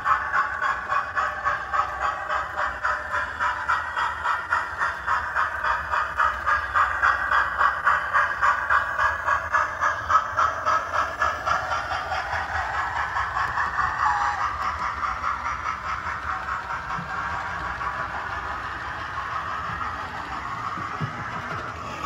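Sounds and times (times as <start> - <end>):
model steam locomotive chuffing: 0.0 - 22.0.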